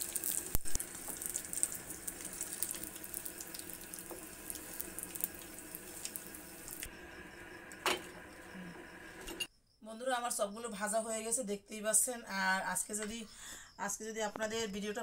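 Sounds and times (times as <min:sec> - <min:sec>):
fritters sizzling in hot oil: 0:00.0 - 0:09.5.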